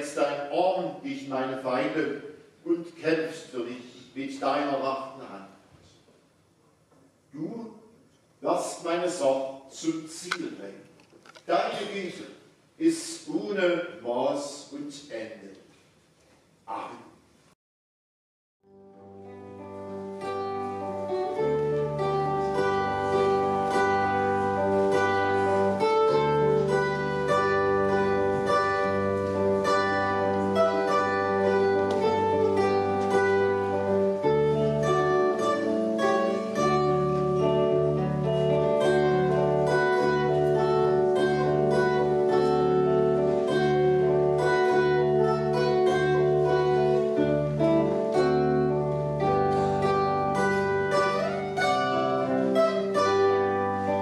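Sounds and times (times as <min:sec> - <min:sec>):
zither playing: 0:18.9 - 0:54.0.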